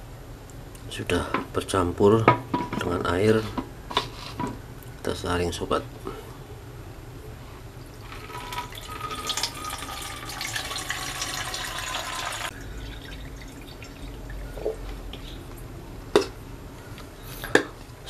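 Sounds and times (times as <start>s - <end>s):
water poured through strainer: 8.0s - 14.5s.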